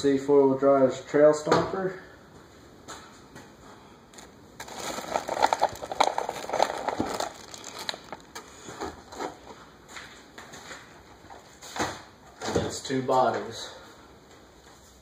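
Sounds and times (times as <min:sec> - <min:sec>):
plastic wrapping crinkling: 0:04.2 - 0:09.6.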